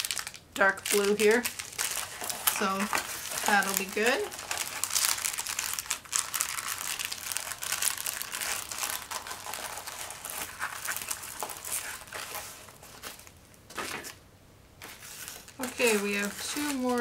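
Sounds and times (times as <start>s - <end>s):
paper wrapping crinkling: 0.0s - 14.2s, 14.8s - 17.0s.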